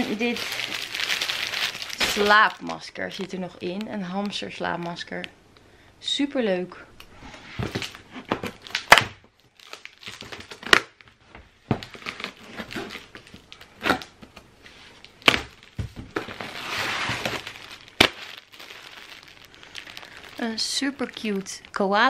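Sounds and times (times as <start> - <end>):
plastic wrapping crinkling: 0.0 - 5.3, 7.0 - 22.0.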